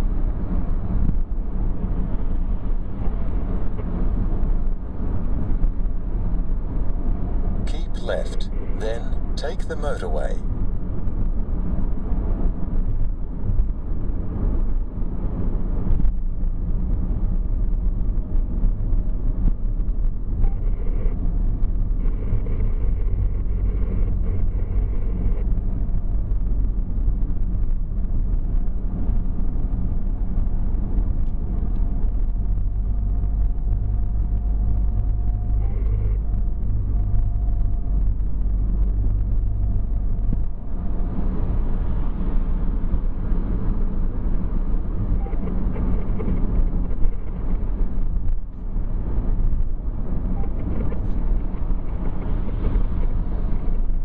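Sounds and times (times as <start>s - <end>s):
car road and engine noise: 0.0s - 54.0s.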